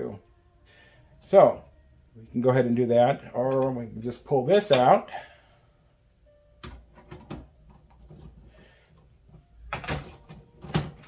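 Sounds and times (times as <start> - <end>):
plastic parts clicking and knocking: 6.6 - 11.0.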